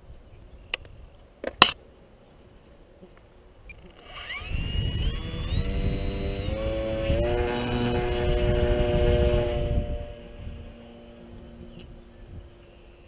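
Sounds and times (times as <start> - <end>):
electric motor and propeller whine: 3.7 - 13.0.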